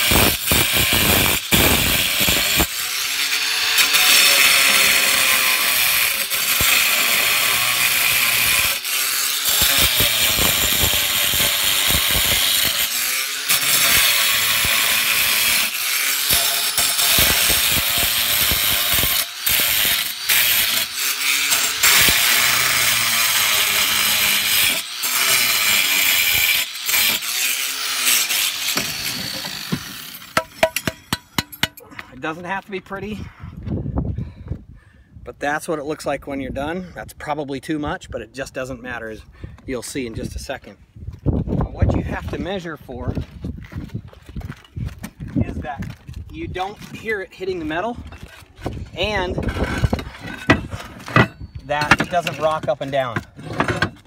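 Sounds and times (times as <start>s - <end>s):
angle grinder cutting roof tile: 0.0s - 31.9s, 46.5s - 54.0s.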